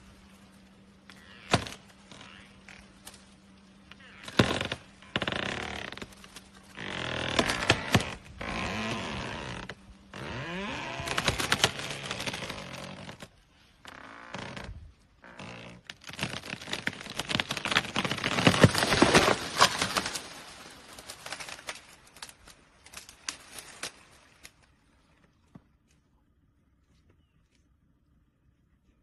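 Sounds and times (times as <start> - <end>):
branches snapping: 1.0 - 13.3, 13.9 - 24.7
tree trunk cracking and splintering: 1.1 - 13.3, 13.9 - 24.6.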